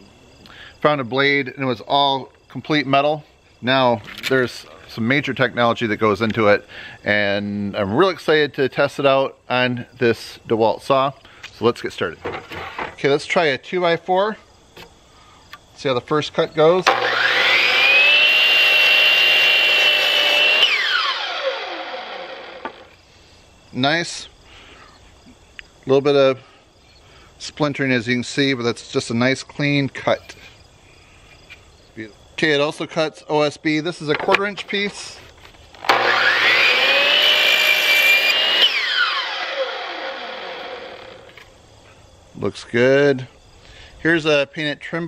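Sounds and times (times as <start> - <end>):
miter saw blade whining: 16.6 - 23.0, 35.8 - 41.6
saw cutting through wood: 16.8 - 23.0, 35.8 - 41.4.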